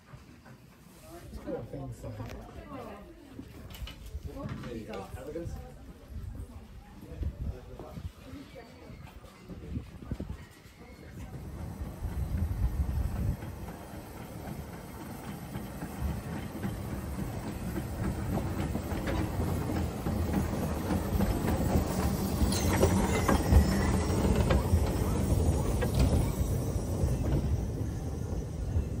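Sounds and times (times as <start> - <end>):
steam locomotive running gear clanking: 9.0 - 29.0
wheels clicking over rail joints: 11.1 - 29.0.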